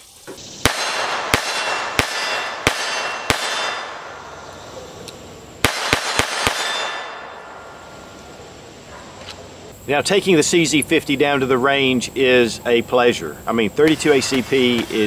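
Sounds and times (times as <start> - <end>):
pistol shots with echo: 0.6 - 4.6, 5.6 - 8.0.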